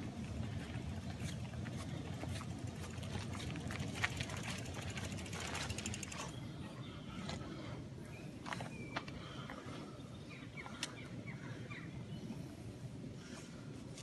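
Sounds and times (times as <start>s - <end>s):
footsteps on dirt trail: 0.0s - 6.4s
bike rattling: 0.0s - 6.6s
bike freewheel ticking: 2.4s - 6.4s.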